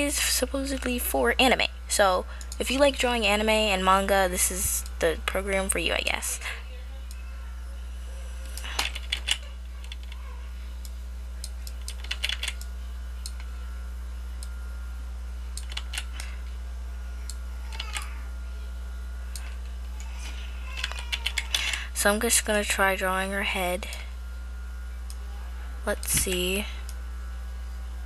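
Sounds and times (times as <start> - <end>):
steady low hum: 0.0 - 28.0
keyboard keys clicking: 11.7 - 12.7, 15.6 - 16.1.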